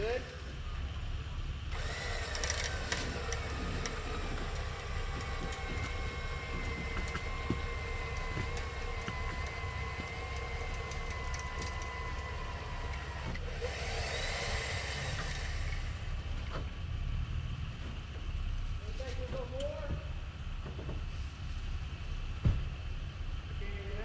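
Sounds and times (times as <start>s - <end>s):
electric winch whining: 0.0s - 16.8s
engines rumbling: 0.0s - 24.0s.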